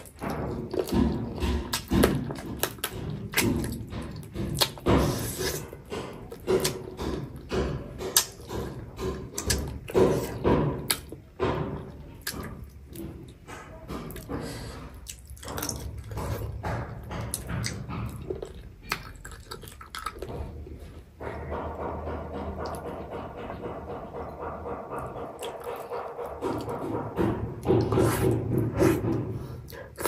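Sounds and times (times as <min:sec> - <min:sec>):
soft chewing thumps: 0:00.0 - 0:30.0
wet lip smacks and mouth clicks: 0:17.3 - 0:20.4.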